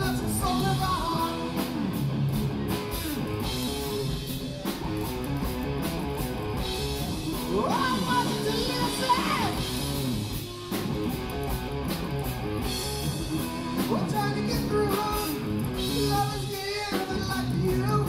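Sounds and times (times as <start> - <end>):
person singing: 0.0 - 1.8, 7.1 - 9.7, 13.2 - 18.0
electric guitars bending notes: 0.0 - 18.0
live rock band: 0.0 - 18.0.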